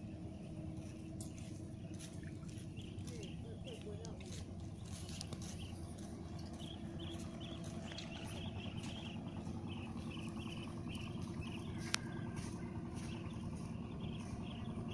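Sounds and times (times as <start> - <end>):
low rumble: 0.0 - 14.9
rhythmic high chirping: 6.5 - 14.9.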